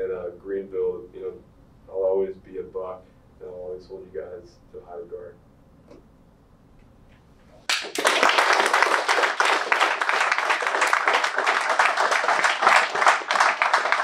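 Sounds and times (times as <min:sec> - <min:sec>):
audience applauding: 0:07.7 - 0:14.0.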